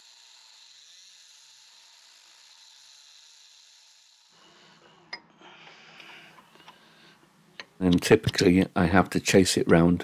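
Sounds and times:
rotary tool whining: 0.0 - 6.8.

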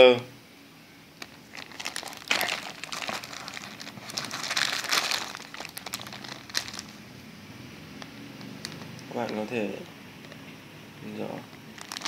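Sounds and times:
plastic bags crinkling: 1.2 - 7.1, 8.4 - 9.8, 11.3 - 12.0.

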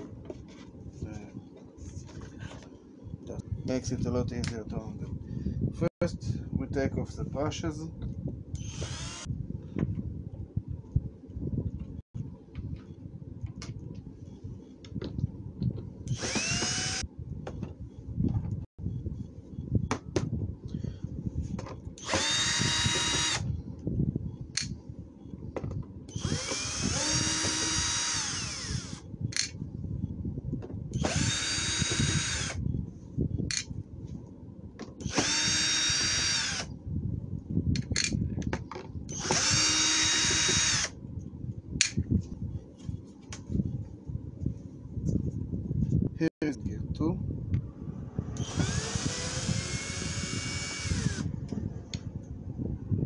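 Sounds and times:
cordless drill whining: 8.6 - 9.3, 16.1 - 17.0, 22.0 - 23.5, 26.1 - 29.0, 31.0 - 32.6, 35.0 - 36.7, 39.1 - 40.9, 48.4 - 51.3.

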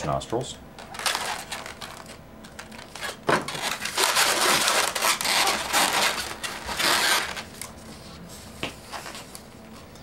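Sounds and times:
balloons rubbing and squeaking: 2.9 - 7.5.

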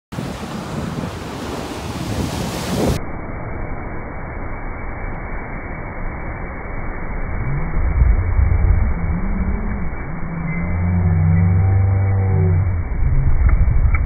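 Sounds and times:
wind buffeting microphone: 0.1 - 3.0, 7.6 - 11.9, 12.6 - 14.0
ocean waves breaking: 0.1 - 3.1.

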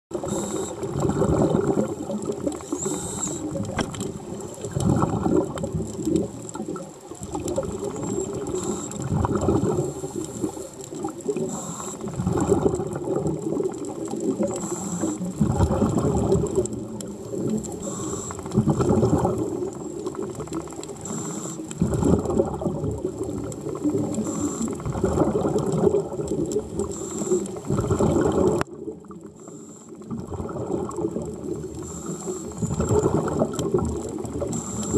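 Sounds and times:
exhaled bubbles crackling: 0.1 - 34.9
scuba diver breathing underwater: 0.1 - 34.9
faint hiss: 0.2 - 1.0, 7.0 - 12.2, 14.4 - 15.3, 17.1 - 18.6, 20.9 - 21.8, 23.8 - 24.9, 26.8 - 27.7, 31.5 - 32.9, 34.3 - 34.9.

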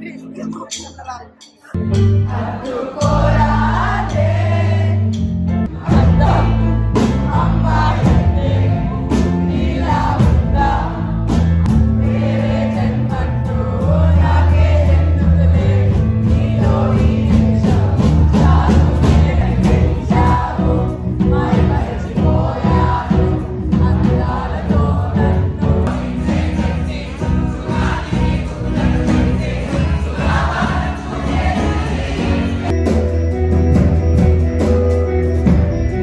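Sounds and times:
live band playing: 0.0 - 36.0
audience singing along: 1.8 - 32.8.

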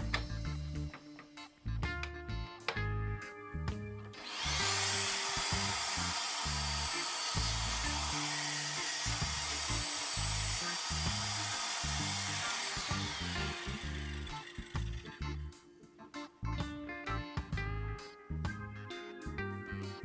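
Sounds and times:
table saw whining: 4.2 - 15.4.

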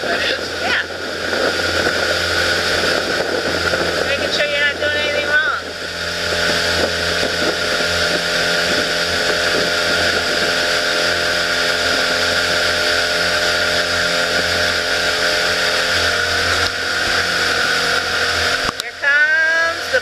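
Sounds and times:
boat motor running: 0.0 - 20.0
rushing wind and water: 0.0 - 20.0.

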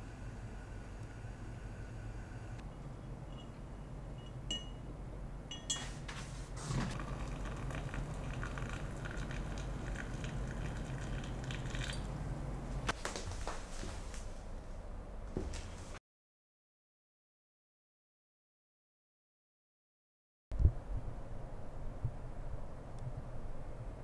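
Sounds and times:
glass clinks: 4.2 - 4.8, 5.5 - 5.9
water pouring into glass pitcher: 6.9 - 12.1.

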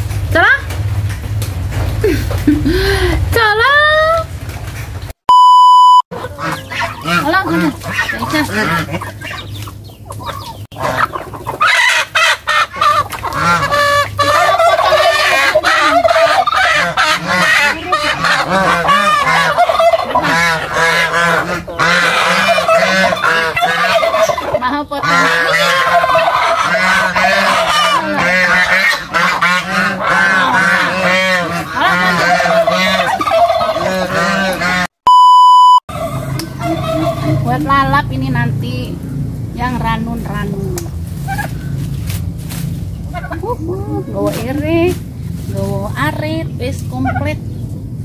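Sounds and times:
steady one-tone beep: 5.3 - 6.1, 35.1 - 35.9
chickens squawking: 6.1 - 34.9, 35.9 - 48.0
geese honking: 6.1 - 34.9, 35.9 - 41.9.

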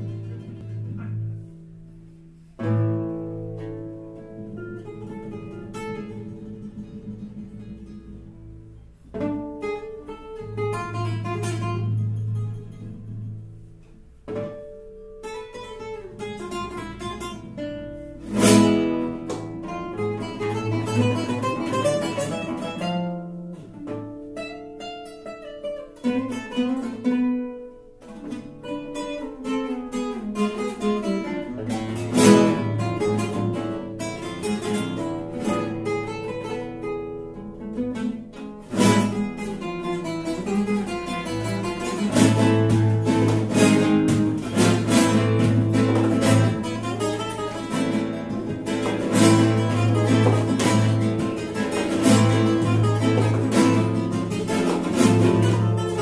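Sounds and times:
classical guitars playing: 0.0 - 56.0
strummed guitar chords: 0.0 - 56.0.

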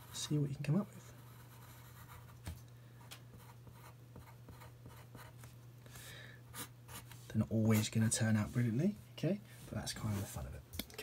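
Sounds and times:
pencil scratching on paper: 0.0 - 0.4, 1.0 - 2.4, 3.4 - 5.4.

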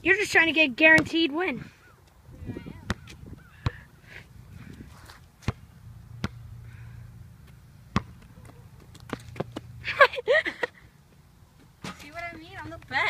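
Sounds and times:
basketball bouncing on concrete: 0.8 - 1.3, 2.6 - 3.8, 5.4 - 6.5, 7.4 - 9.8.

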